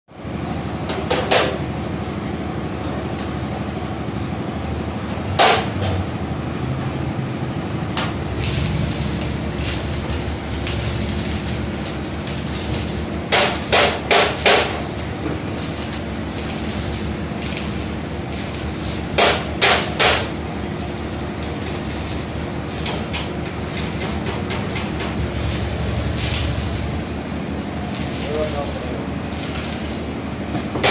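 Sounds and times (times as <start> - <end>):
workshop noise: 0.1 - 30.9
hammer striking steel frame: 5.4 - 6.0, 13.3 - 14.9, 19.0 - 20.4.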